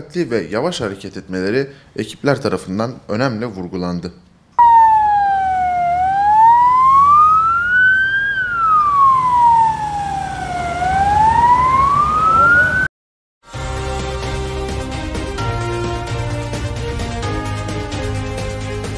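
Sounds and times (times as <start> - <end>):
ambulance siren wailing: 4.6 - 12.9.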